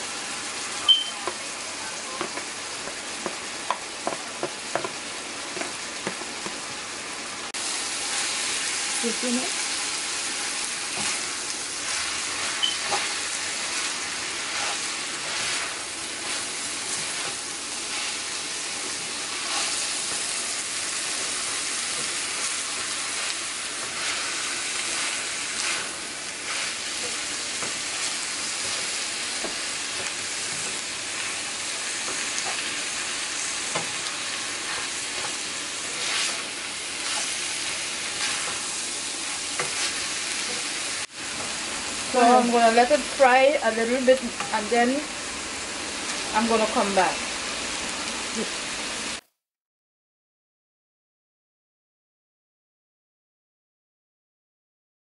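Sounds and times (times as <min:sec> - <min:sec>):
food sizzling in oil: 0:00.0 - 0:49.2
spatula scraping pan: 0:10.9 - 0:41.6.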